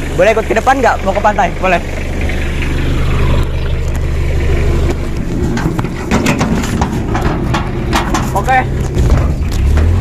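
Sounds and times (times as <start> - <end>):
truck engine idling: 0.0 - 10.0
knocks in metal cargo bed: 5.5 - 10.0.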